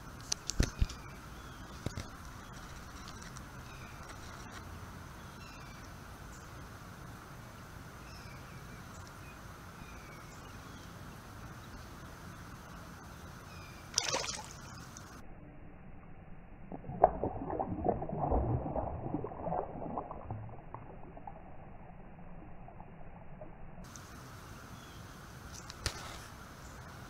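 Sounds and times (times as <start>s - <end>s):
fish splashing in water: 13.9s - 15.2s, 16.7s - 21.5s.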